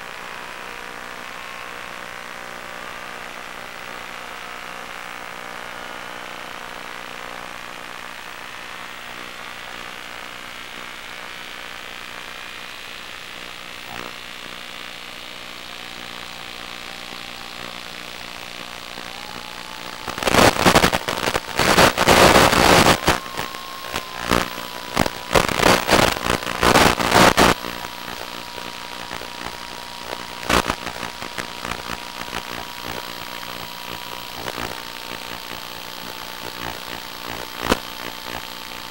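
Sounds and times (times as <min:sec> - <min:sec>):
crackling buffeting noise: 0:09.1 - 0:38.9
model airplane motor whine: 0:13.6 - 0:38.9.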